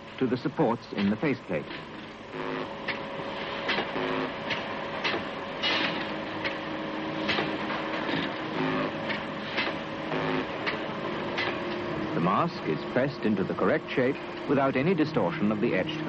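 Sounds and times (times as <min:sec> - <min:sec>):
machinery hum: 0:00.0 - 0:16.0
short steady tones: 0:02.2 - 0:03.3, 0:08.4 - 0:11.0.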